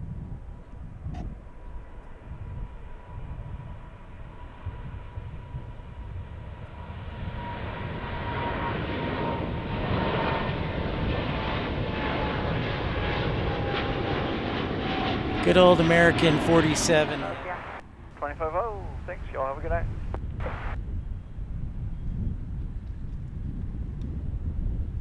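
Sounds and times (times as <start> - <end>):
jet engine roar: 0.1 - 20.8
thin jet whine: 8.0 - 20.8.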